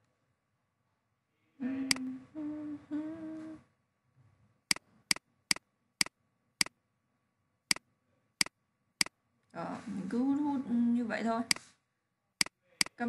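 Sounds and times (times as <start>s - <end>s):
person humming: 1.6s - 3.6s.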